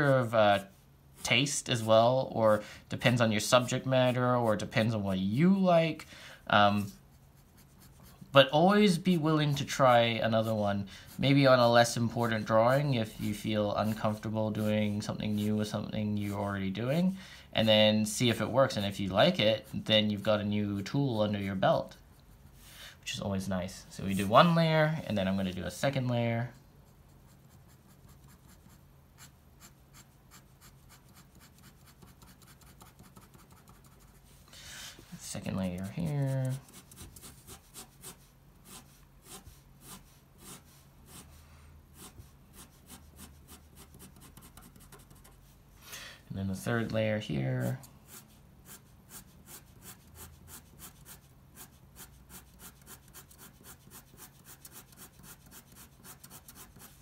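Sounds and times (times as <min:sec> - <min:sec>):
pen scratching on paper: 0:48.1 - 0:57.0.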